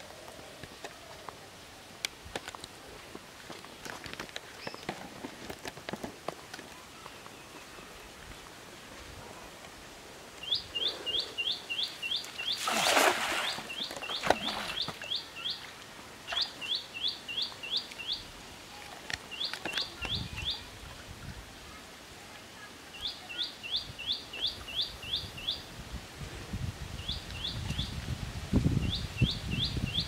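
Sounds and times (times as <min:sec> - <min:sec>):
net splashing on water: 0:12.5 - 0:15.0.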